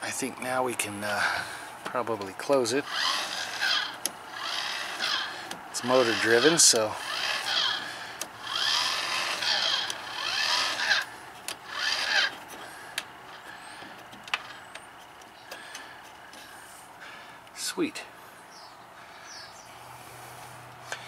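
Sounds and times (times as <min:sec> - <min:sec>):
vent crank gearing grinding: 0:00.9 - 0:17.6.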